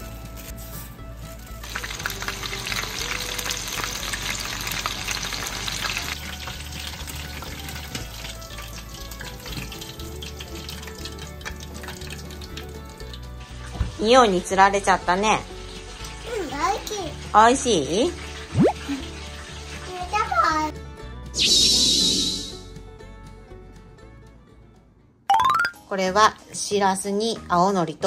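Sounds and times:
food deep-frying in oil: 0.0s - 20.7s.

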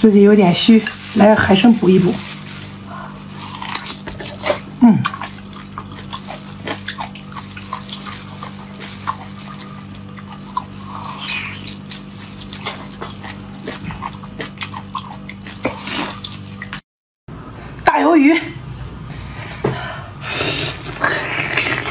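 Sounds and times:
wet chewing and mouth smacks: 2.2s - 16.8s.

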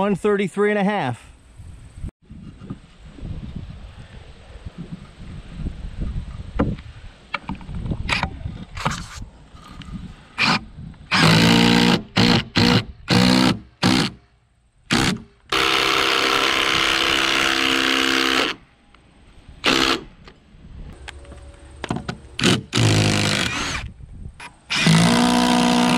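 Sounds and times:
cordless driver driving screws: 10.4s - 14.2s, 22.4s - 25.9s.

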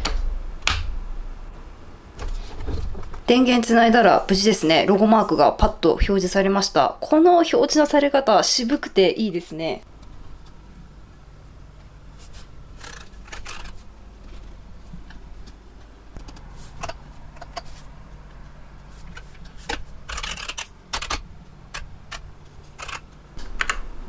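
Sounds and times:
low steady hum: 0.0s - 24.0s
keyboard and mouse clicks: 19.1s - 23.9s.

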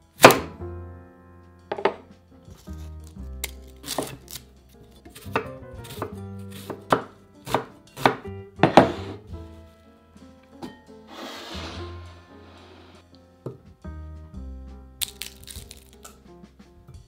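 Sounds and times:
knife chopping on wooden board: 5.2s - 9.2s.

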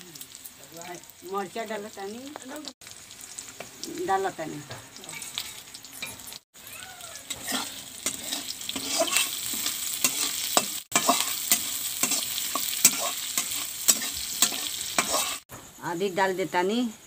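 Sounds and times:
onions sizzling in hot oil: 0.0s - 17.0s
metal spatula scraping a pan: 5.1s - 6.4s, 7.2s - 15.5s.

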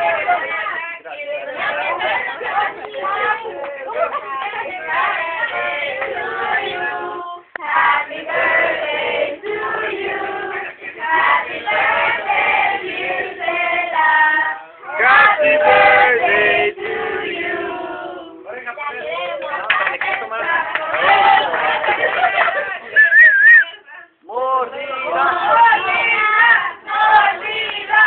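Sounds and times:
group singing without instruments: 0.0s - 23.3s, 24.6s - 28.0s.

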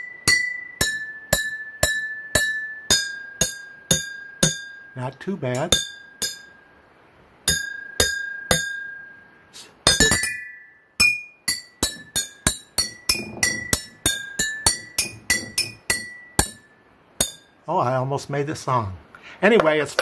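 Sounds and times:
spoon tapping water-filled glass jars: 11.0s - 16.6s.

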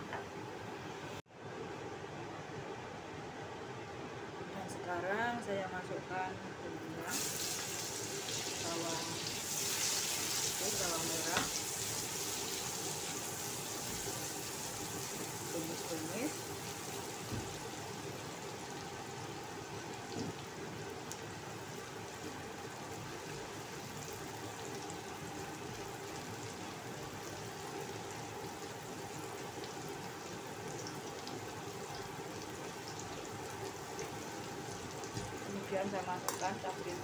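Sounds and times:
shallots sizzling in hot oil: 7.0s - 18.9s, 22.9s - 37.0s.

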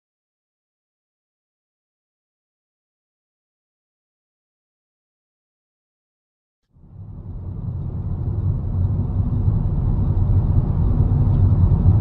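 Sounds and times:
car engine rumble and road noise: 6.7s - 12.0s.

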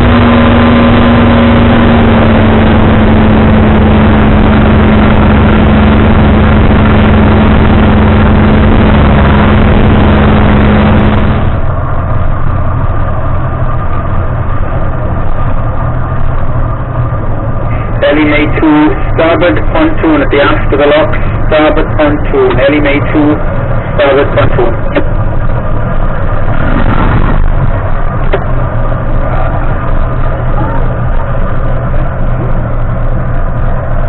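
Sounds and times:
outboard motor running: 0.0s - 12.6s
rushing wind: 0.0s - 34.0s.

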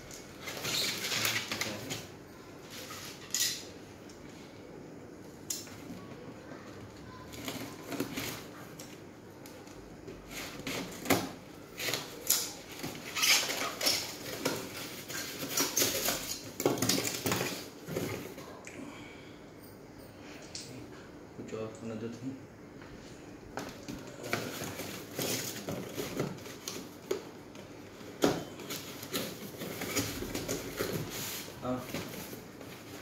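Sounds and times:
cardboard packaging being handled: 23.6s - 27.4s, 28.0s - 33.0s.

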